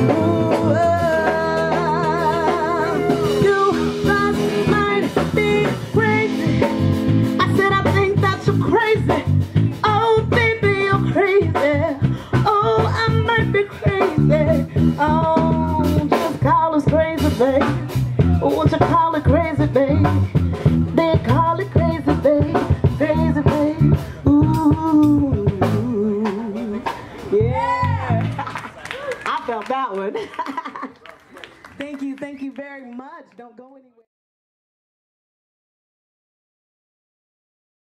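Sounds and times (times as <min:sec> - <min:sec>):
woman singing with vibrato: 0:00.0 - 0:28.2
electric bass guitar: 0:00.0 - 0:28.4
drum kit beat: 0:00.0 - 0:29.9.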